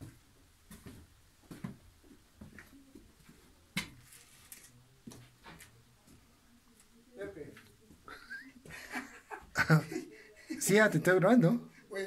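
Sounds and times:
footsteps in stone tunnel: 0:00.0 - 0:02.6.

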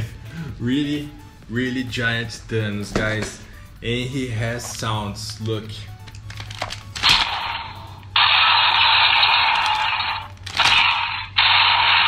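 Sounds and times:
toy speaker hissing blasts: 0:07.1 - 0:12.0.

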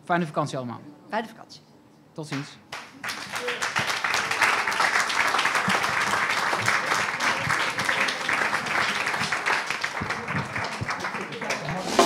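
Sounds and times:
audience applauding: 0:02.7 - 0:12.0.

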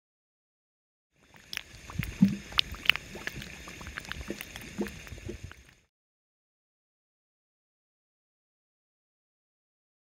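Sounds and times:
mud pot bubbling and popping: 0:01.2 - 0:05.9.

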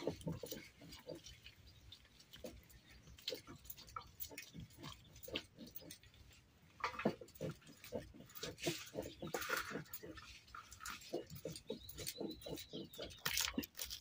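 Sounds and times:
grinding stone rubbing on stone slab: 0:07.0 - 0:14.0.

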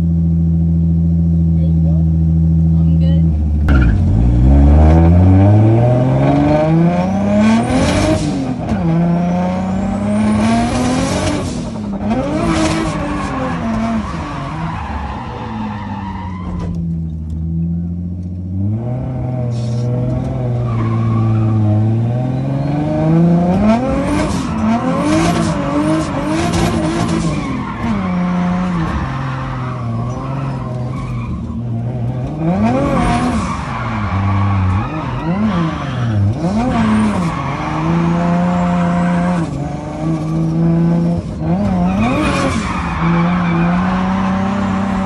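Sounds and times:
car engine revving: 0:02.0 - 0:45.0
tyres screeching: 0:23.6 - 0:45.0.

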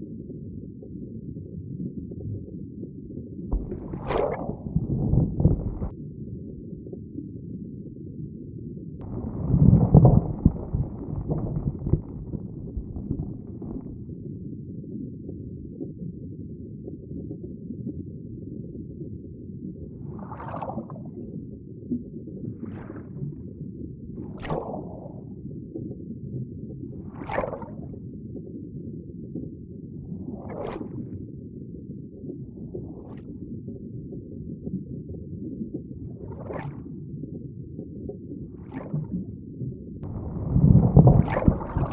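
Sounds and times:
underwater low rumble: 0:00.0 - 0:41.9
rush of water: 0:03.5 - 0:05.9, 0:09.0 - 0:14.0, 0:24.2 - 0:25.1, 0:27.1 - 0:27.8, 0:40.1 - 0:41.9
watery swish: 0:03.5 - 0:05.9, 0:09.0 - 0:14.1, 0:20.0 - 0:21.2, 0:22.4 - 0:23.4, 0:24.2 - 0:25.4, 0:27.0 - 0:28.0, 0:30.0 - 0:31.2, 0:36.0 - 0:37.0, 0:38.5 - 0:39.3, 0:40.0 - 0:41.9.

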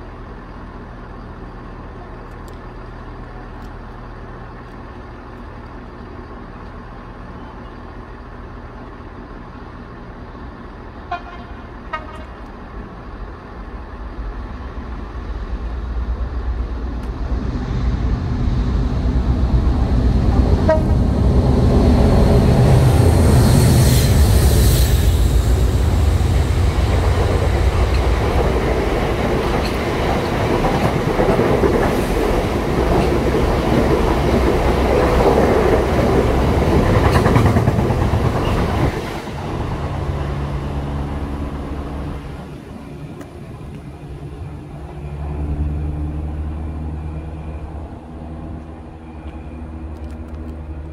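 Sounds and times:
diesel locomotives passing: 0:00.0 - 0:50.9
diesel train idling: 0:00.0 - 0:50.9
train horn toots: 0:11.1 - 0:12.5, 0:20.6 - 0:21.1.

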